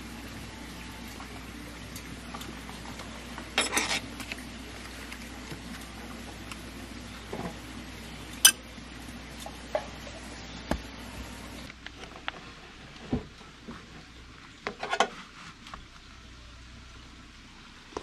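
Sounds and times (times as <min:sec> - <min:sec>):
metal cookware clinking: 0:03.6 - 0:04.1.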